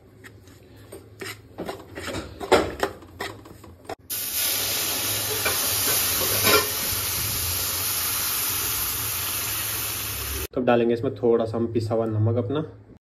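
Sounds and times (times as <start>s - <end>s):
metal spatula scraping a pan: 1.2s - 3.5s, 5.3s - 6.8s
water sizzling in hot pan: 4.0s - 10.5s.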